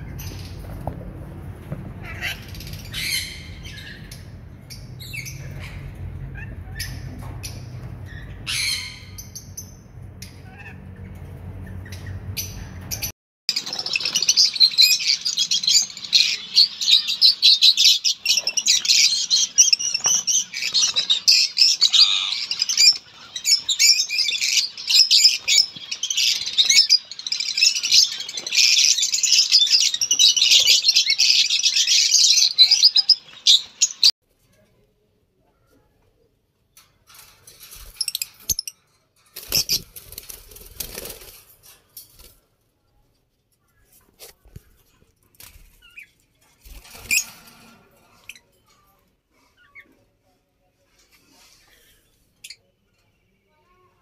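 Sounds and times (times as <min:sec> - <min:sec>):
birds chirping and squawking: 0:00.0 - 0:34.1, 0:37.1 - 0:42.4, 0:43.6 - 0:50.2.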